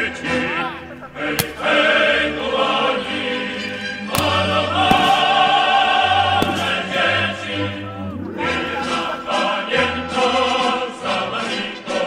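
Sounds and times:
choir singing sustained chords: 0.0 - 12.0
sharp cracks: 1.2 - 2.0, 4.0 - 7.6.

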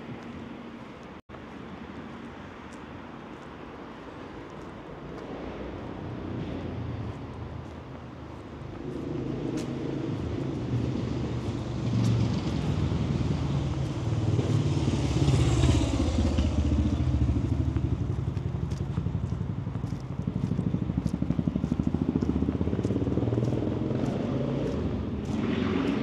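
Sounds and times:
vehicle engine rumble approaching: 5.4 - 26.0.

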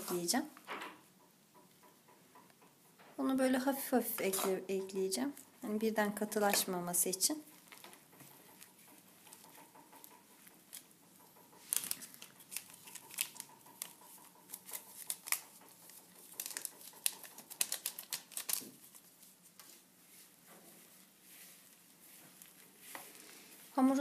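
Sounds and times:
plastic gloves crinkling: 4.2 - 24.0
sachet crinkling and crackling: 11.6 - 19.6.

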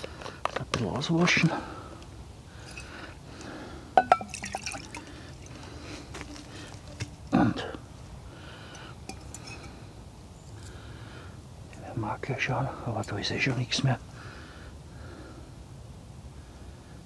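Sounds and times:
water pouring into metal mug: 4.0 - 5.5.

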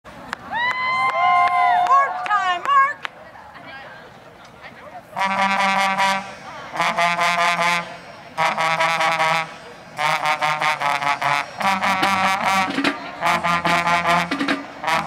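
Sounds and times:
marching band brass playing: 5.1 - 15.0.

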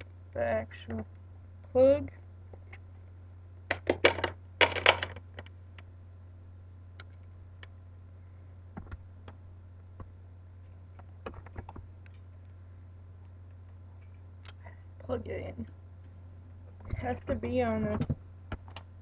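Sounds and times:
steady low hum: 0.0 - 19.0
plastic clicks and rattles: 3.7 - 5.9.

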